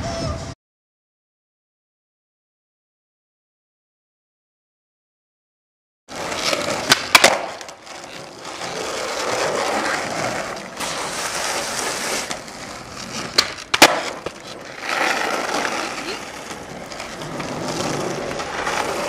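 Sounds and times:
skateboard clacking on ground: 6.1s - 19.0s
skateboard wheels rolling on asphalt: 6.1s - 19.0s.

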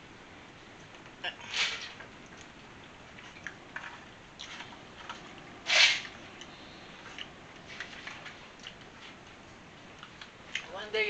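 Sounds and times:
plastic fork scraping foil tray: 5.6s - 6.1s.

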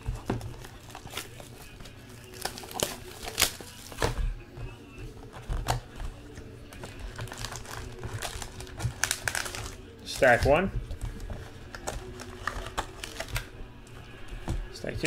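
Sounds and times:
foil packs crinkling and tearing: 0.0s - 4.2s, 6.7s - 13.5s.

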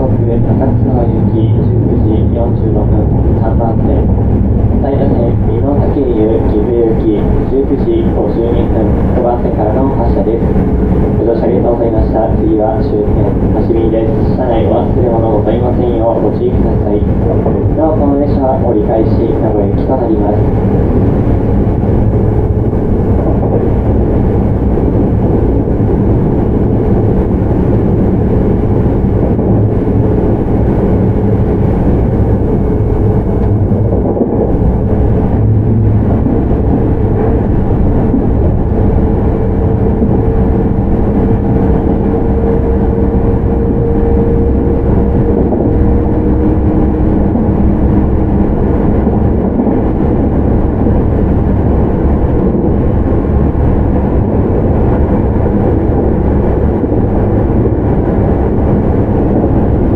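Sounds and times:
low humming tone: 0.0s - 59.9s
train wheels rumbling on rail: 0.0s - 59.9s
traction motors humming: 18.8s - 59.9s.

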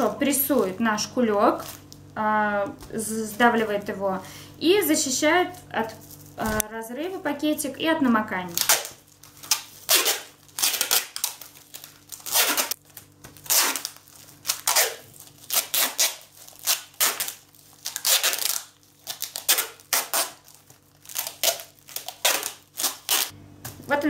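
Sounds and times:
packing tape pulled off roll: 8.6s - 23.8s.

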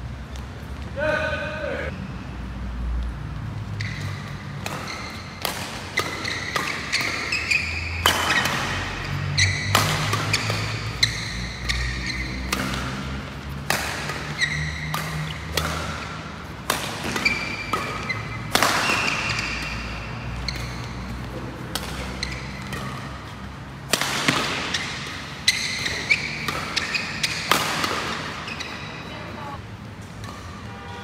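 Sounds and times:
shoes squeaking on floor: 3.7s - 13.2s, 14.0s - 16.2s, 17.0s - 23.4s, 24.5s - 29.6s
rackets striking shuttlecock: 3.8s - 29.3s, 29.9s - 30.7s.

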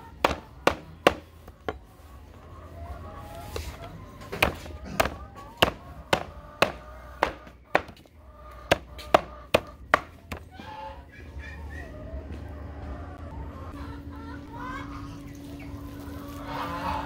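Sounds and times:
chopper chopping fruit on board: 0.1s - 1.8s, 4.3s - 8.1s, 8.7s - 10.5s.

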